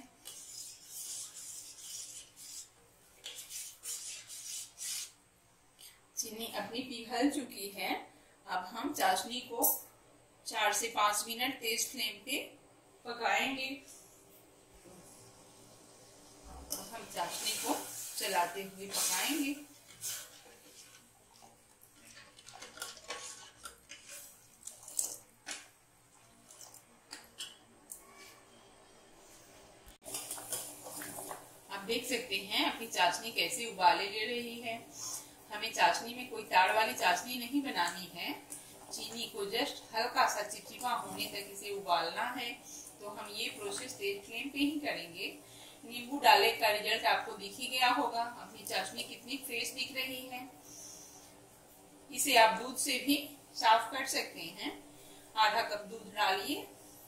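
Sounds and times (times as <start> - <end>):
liquid sloshing: 19.8 - 27.6
metal spoon scraping pot: 22.0 - 24.4.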